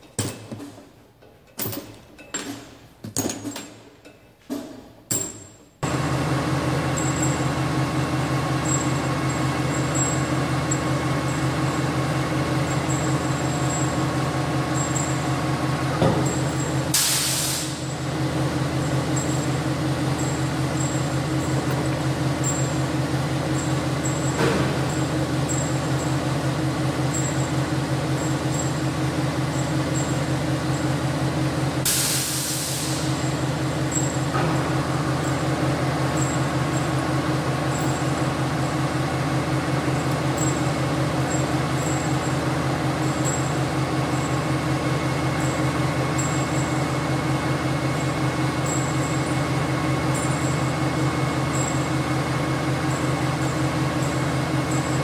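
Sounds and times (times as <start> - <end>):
band saw running: 5.8 - 17.0, 17.6 - 31.9, 33.0 - 55.0
compressed air hiss: 17.0 - 17.9, 31.9 - 33.2.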